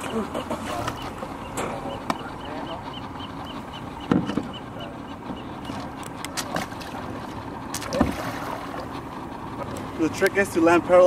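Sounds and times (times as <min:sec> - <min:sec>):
sharp knocks: 0:04.1 - 0:04.5
shallow water splashing: 0:05.6 - 0:10.0.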